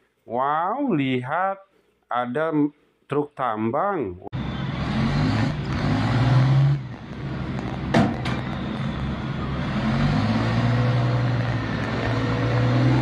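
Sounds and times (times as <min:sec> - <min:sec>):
haul truck diesel engine: 0:04.4 - 0:13.0
sharp knocks: 0:07.9 - 0:08.5.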